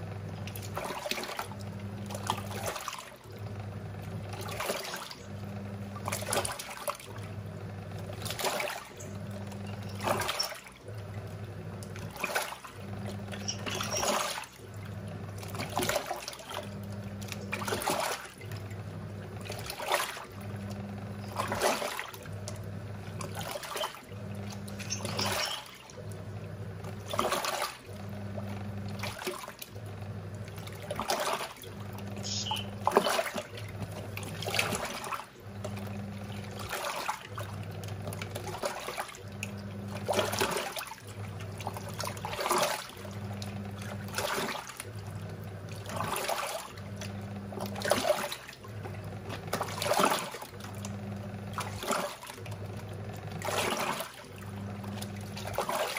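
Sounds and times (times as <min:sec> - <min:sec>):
washing machine motor humming: 0:00.0 - 0:55.9
water and laundry swishing: 0:00.0 - 0:55.9.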